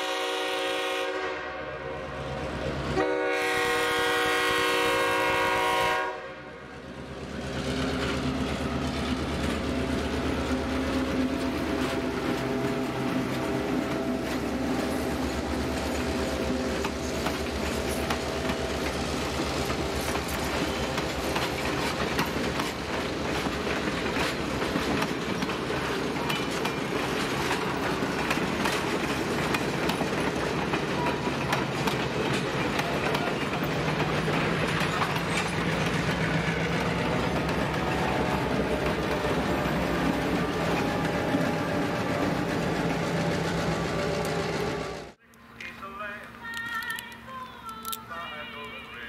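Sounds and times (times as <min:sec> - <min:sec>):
diesel locomotive engine hum: 0:00.0 - 0:49.0
train wheels clickety-clack: 0:07.2 - 0:45.2.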